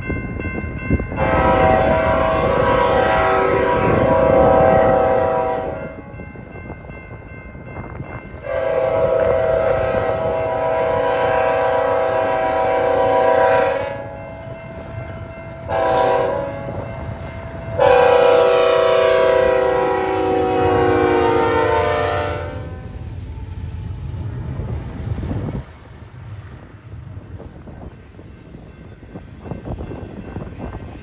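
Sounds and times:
locomotive air horn blasts: 1.2 - 6.1, 8.4 - 23.0.

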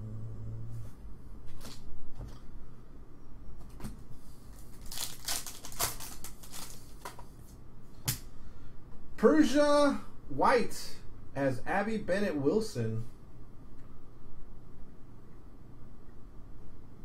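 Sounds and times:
foil wrappers crinkling and tearing: 4.5 - 7.2.

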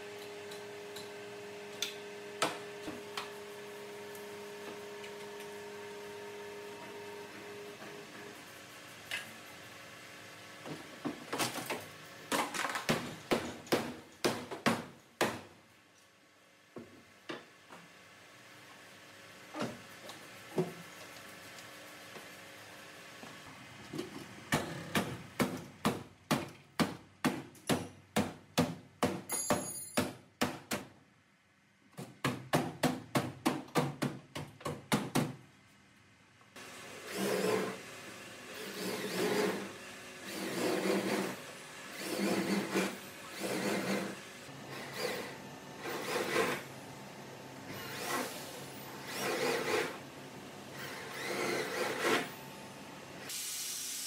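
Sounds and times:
power saw cutting metal: 36.9 - 37.9, 38.5 - 46.7, 47.7 - 50.0, 50.7 - 52.3.

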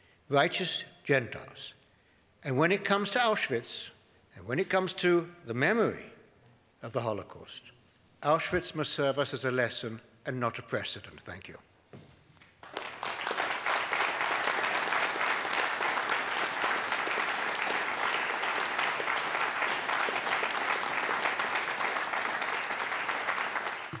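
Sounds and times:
audience applauding: 12.6 - 24.0.

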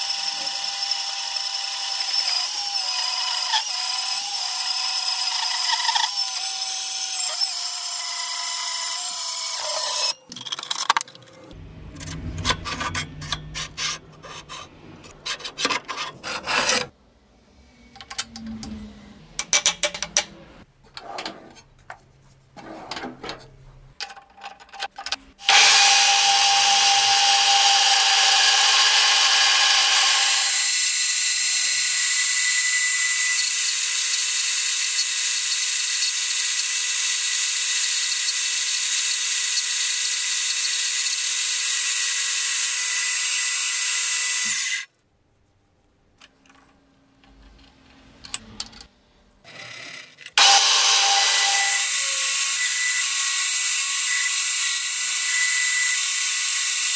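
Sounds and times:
bandsaw cutting steel: 0.0 - 10.3, 12.0 - 16.9, 25.4 - 44.9, 49.5 - 56.9
low hum: 11.1 - 15.4
clicks and metal knocks: 19.4 - 22.0, 22.9 - 25.3
milling machine cutting steel: 25.4 - 44.9, 50.4 - 56.9.

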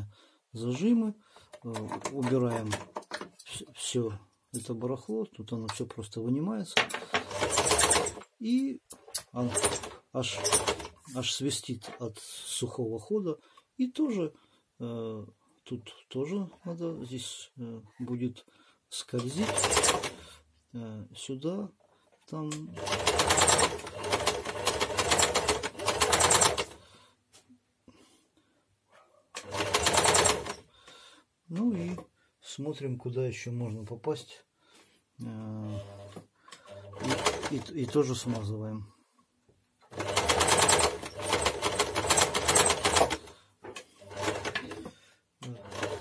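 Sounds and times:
sewing machine running fast: 7.3 - 8.2, 19.4 - 20.2, 22.8 - 26.8, 29.4 - 30.5, 36.9 - 37.6, 39.9 - 43.3, 44.0 - 44.8, 45.6 - 46.0.

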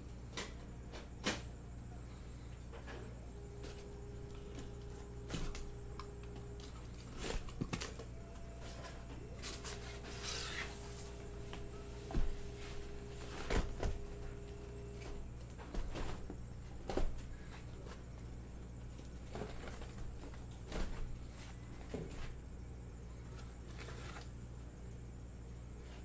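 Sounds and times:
cardboard flaps scraping: 6.4 - 18.2, 23.4 - 24.3.

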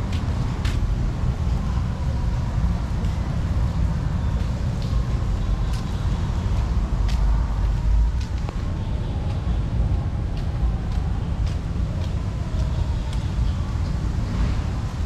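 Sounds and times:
city traffic rumble: 0.0 - 15.0
faint light ticks: 6.6 - 14.0.

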